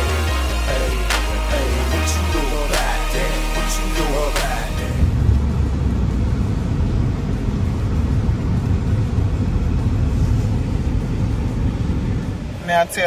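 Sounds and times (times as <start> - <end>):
music track: 0.0 - 5.8
car interior rumble: 4.0 - 13.0.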